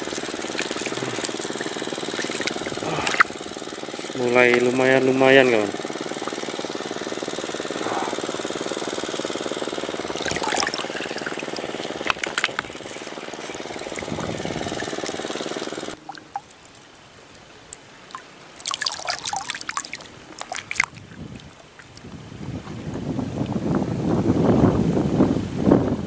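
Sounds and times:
water trickling and dripping: 0.0s - 7.8s, 10.0s - 22.8s
water splashes: 0.0s - 22.9s
small engine humming: 0.0s - 23.1s.

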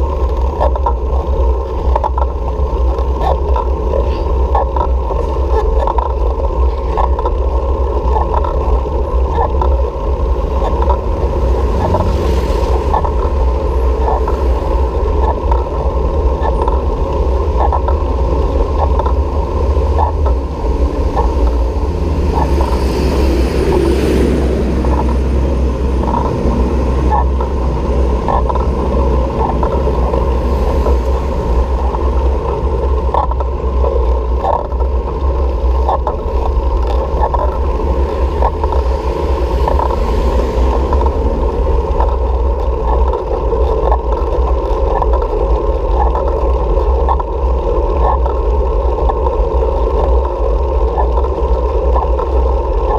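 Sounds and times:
faint regular clicks: 0.0s - 12.0s, 24.7s - 52.9s
road noise: 0.0s - 52.9s
wind rumbling on microphone: 0.0s - 52.9s
vehicle passing: 10.2s - 33.8s, 36.2s - 43.5s.

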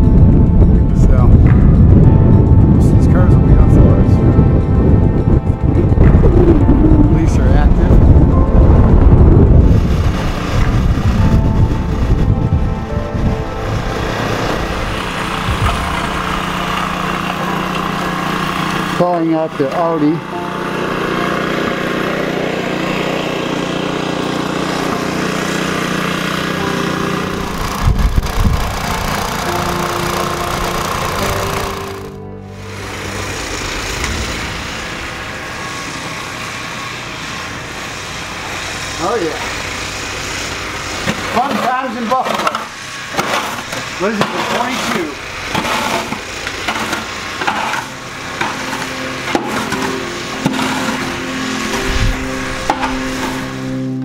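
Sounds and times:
low thumps: 0.0s - 16.6s
music with held tones: 0.0s - 22.8s, 26.4s - 37.7s, 46.5s - 54.0s
snow shovel scraping snow: 9.7s - 11.7s, 13.6s - 32.1s, 35.6s - 53.9s
engine idling: 13.6s - 54.0s
shovel blade knocking pavement: 41.0s - 51.1s.

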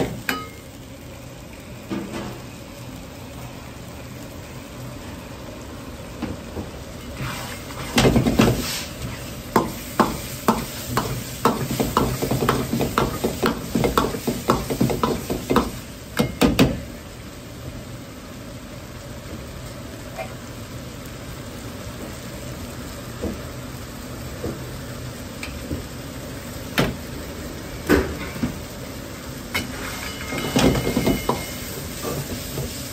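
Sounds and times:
ladle knocking and scraping wok: 7.2s - 16.8s, 29.5s - 32.9s.

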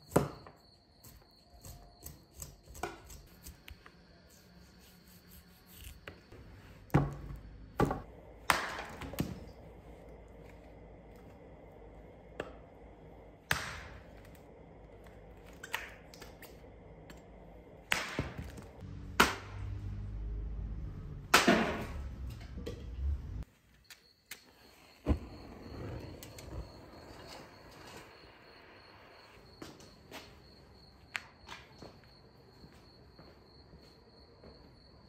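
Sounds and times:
crickets chirping: 0.0s - 19.1s, 23.4s - 35.0s.

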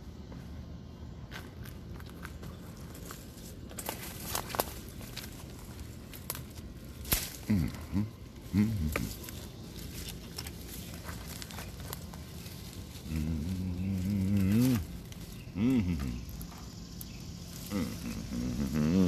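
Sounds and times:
low-pitched vocal calls: 7.2s - 19.0s.

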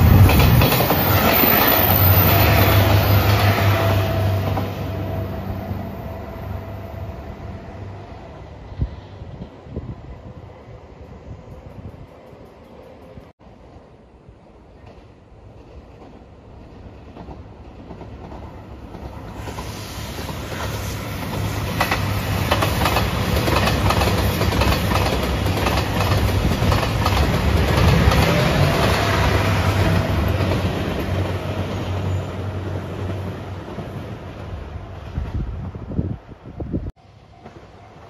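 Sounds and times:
train wheels clicking on rail joints: 0.0s - 5.1s, 14.8s - 35.8s
diesel train engines humming: 0.0s - 13.3s.

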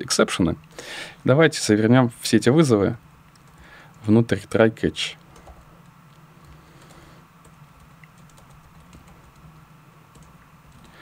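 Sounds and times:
low steady hum: 0.0s - 11.0s
faint keyboard typing: 3.3s - 4.1s, 5.2s - 11.0s.

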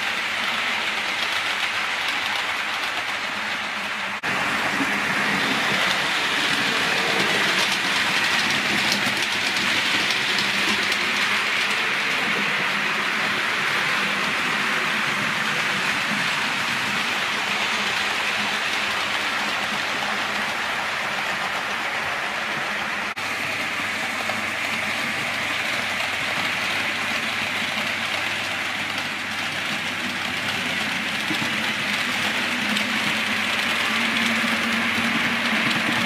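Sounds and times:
model train wheels rumbling: 0.0s - 36.0s.

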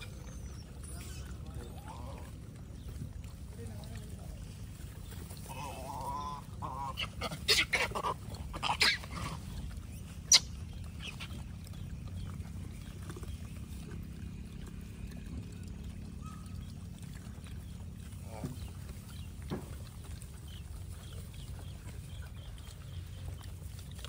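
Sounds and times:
short harsh monkey calls: 10.2s - 11.3s.

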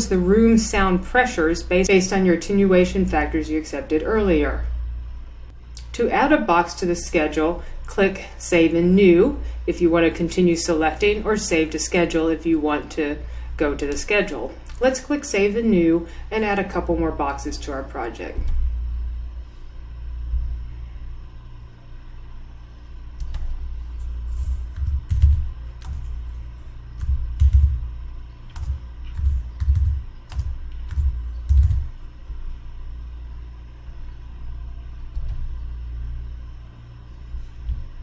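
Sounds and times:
steady low hum: 0.0s - 38.0s
computer keyboard typing: 23.2s - 23.6s, 24.7s - 26.2s, 27.0s - 27.8s, 28.5s - 31.9s.

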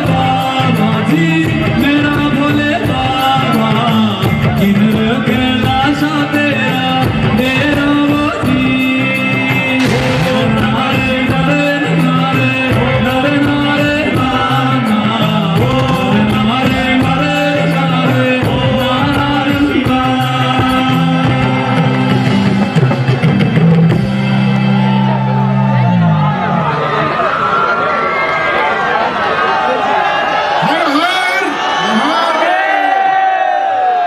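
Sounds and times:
man singing devotional song: 0.0s - 22.2s
live band music: 0.0s - 26.1s
steady drumbeat: 9.7s - 24.4s.

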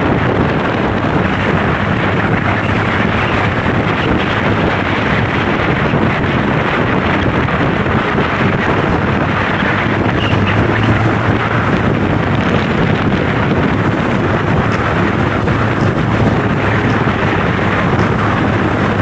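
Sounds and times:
scooter engine: 0.0s - 6.9s, 7.6s - 19.0s
road noise: 0.0s - 19.0s
wind buffeting microphone: 0.0s - 19.0s.

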